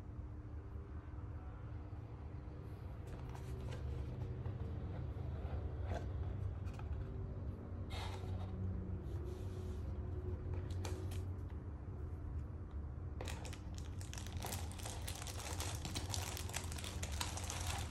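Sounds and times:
steady low hum: 0.0s - 17.9s
cardboard scraping and rustling: 3.0s - 8.6s.

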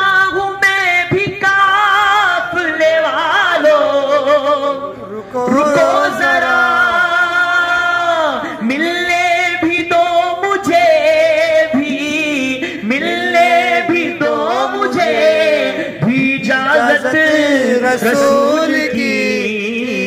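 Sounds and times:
man singing unaccompanied: 0.0s - 20.0s.

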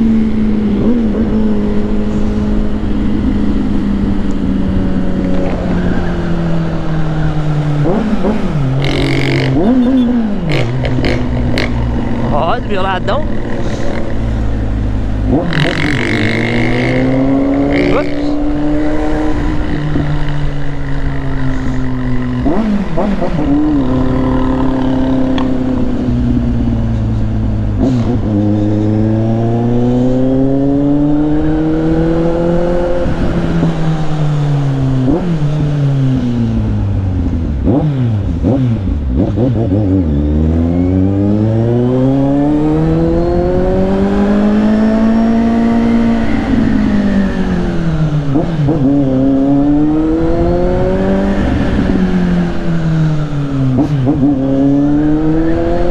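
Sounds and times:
motorcycle engine revving: 0.0s - 55.9s
wind on microphone: 42.4s - 55.9s.

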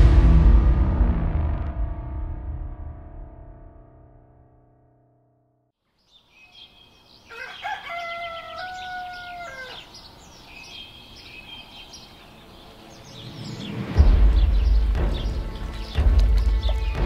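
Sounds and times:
small birds chirping: 5.9s - 17.0s
rooster crowing: 7.2s - 10.0s.

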